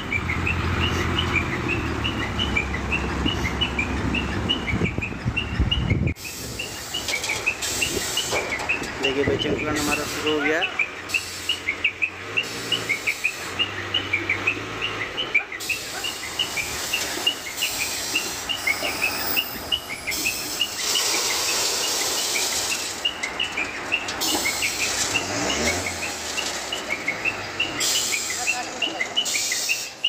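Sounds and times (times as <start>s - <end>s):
small birds chirping: 10.6s - 30.0s
rushing hiss: 20.1s - 23.0s.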